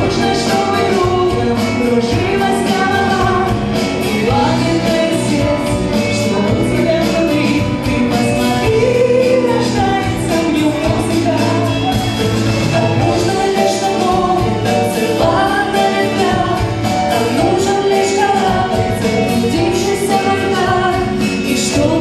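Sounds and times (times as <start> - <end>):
pop band with electronic keyboard: 0.0 - 22.0
woman singing: 0.0 - 22.0.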